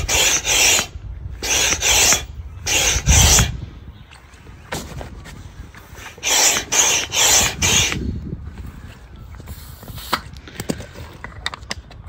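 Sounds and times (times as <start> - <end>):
hand pump air rushes: 0.0 - 3.6, 5.8 - 8.2.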